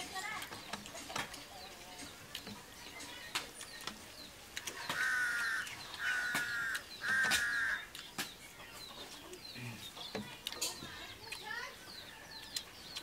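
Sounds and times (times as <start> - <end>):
crow cawing: 4.9 - 7.9.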